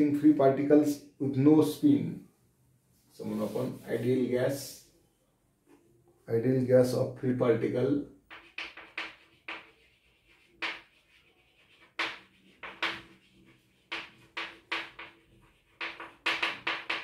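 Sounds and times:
chalk scratching on blackboard: 3.2s - 4.3s, 8.2s - 17.0s.

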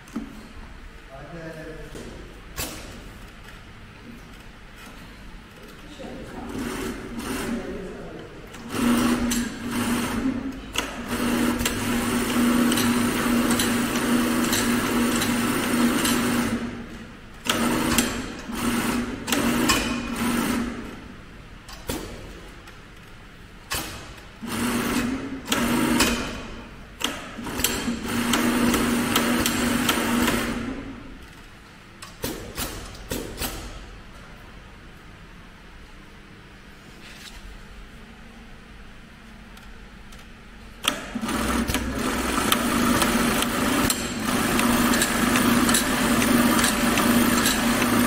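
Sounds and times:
sewing machine stitching: 8.6s - 16.7s, 17.5s - 20.8s, 40.9s - 48.0s.

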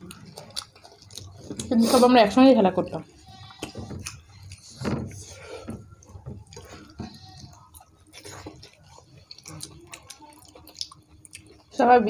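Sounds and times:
wet chewing: 0.0s - 11.9s
fingers squishing food on plate: 5.7s - 11.7s.

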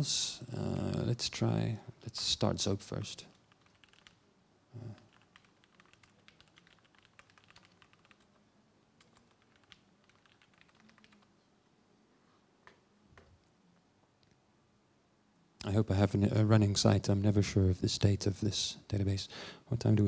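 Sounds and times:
typing on laptop keyboard: 3.3s - 4.2s, 5.0s - 8.4s, 9.0s - 11.3s.

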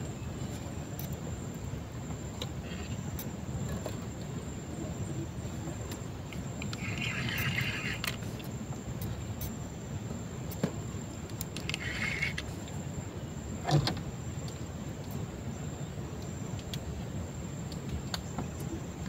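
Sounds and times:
low steady rumble: 0.0s - 19.0s
fishing reel whirring: 6.7s - 8.3s, 11.6s - 12.5s.

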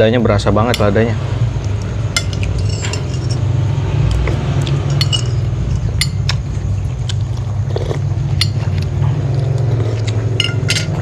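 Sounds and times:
steady low hum: 0.0s - 11.0s
utensils clinking on glass bowls: 2.1s - 6.6s, 8.3s - 8.9s, 10.0s - 11.0s.

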